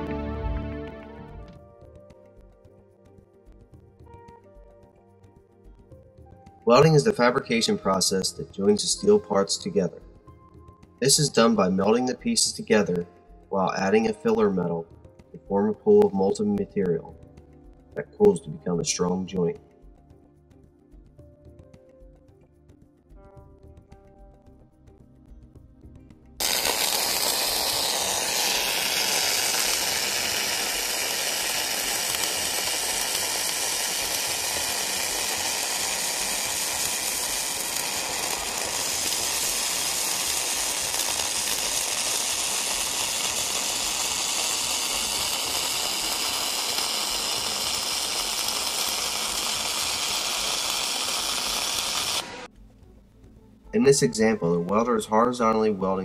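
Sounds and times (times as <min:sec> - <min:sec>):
arc welding hiss and crackle: 0:06.7 - 0:10.0, 0:11.0 - 0:14.7, 0:26.4 - 0:52.5.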